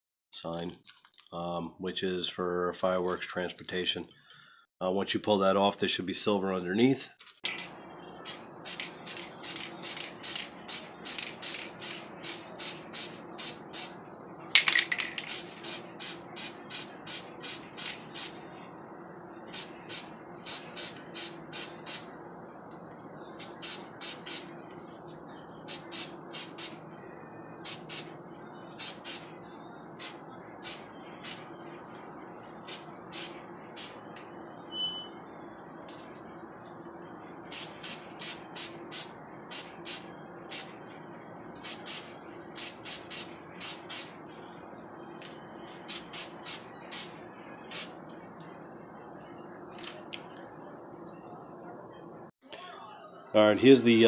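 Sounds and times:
spray paint can hissing: 0:08.3 - 0:13.9, 0:15.2 - 0:18.4, 0:19.5 - 0:22.0, 0:23.4 - 0:24.5, 0:25.7 - 0:26.8, 0:27.6 - 0:28.1, 0:28.8 - 0:29.3, 0:30.0 - 0:31.4, 0:37.5 - 0:40.7, 0:41.6 - 0:44.1, 0:45.9 - 0:47.1.

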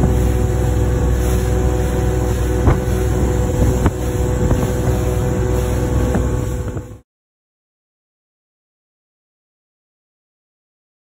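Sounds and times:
boat motor running: 0:00.0 - 0:07.0.

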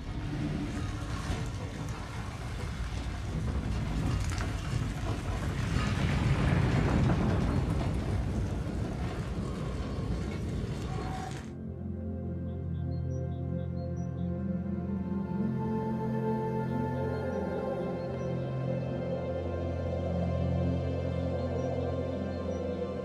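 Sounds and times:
deep noisy rumble: 0:00.0 - 0:12.0.

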